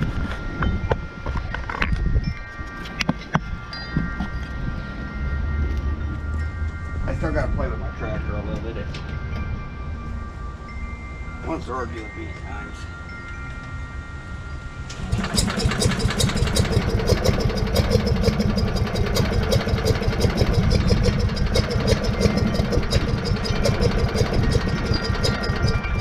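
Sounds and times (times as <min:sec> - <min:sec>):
tractor engine starting and running: 0:14.8 - 0:26.0.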